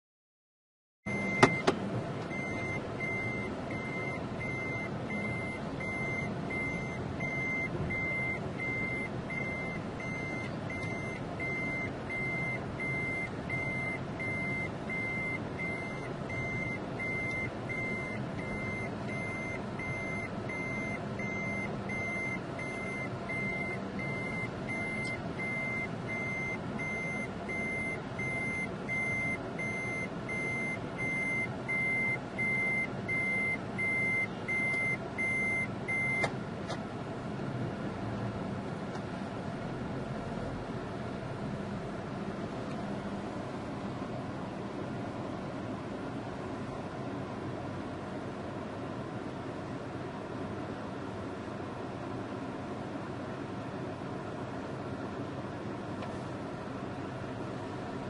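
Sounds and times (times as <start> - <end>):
reversing alarm beeping: 1.1 - 1.7, 2.3 - 36.3
lorry engine running: 1.1 - 58.0.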